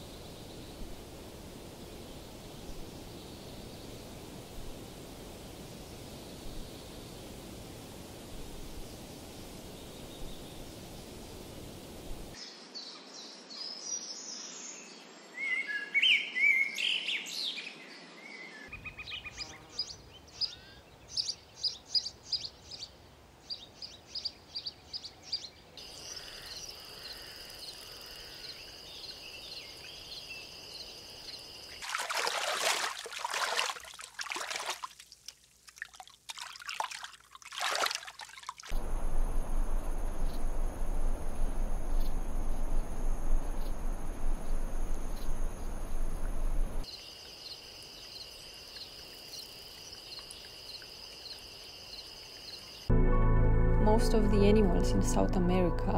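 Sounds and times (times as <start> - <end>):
loud water splashes: 31.7 - 39.2
soft hiss: 38.7 - 46.8.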